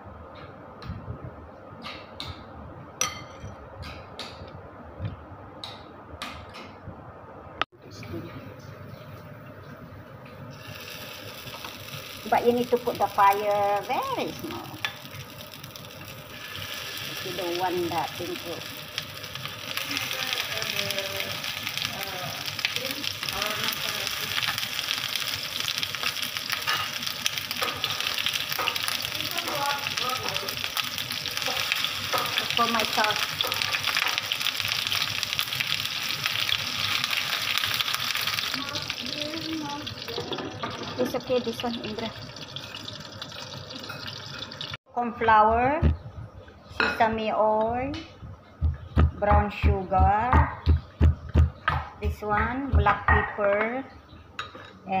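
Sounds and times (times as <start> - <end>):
metal spoon clinking on bowl: 3.0 - 3.5
oil sizzling in a frying pan: 10.5 - 44.8.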